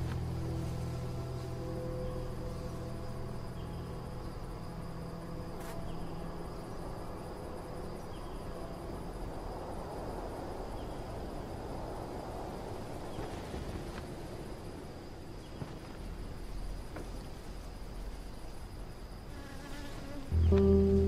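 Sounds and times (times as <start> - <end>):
crickets chirping: 0.0 - 21.0
low rumbling background: 20.3 - 21.0.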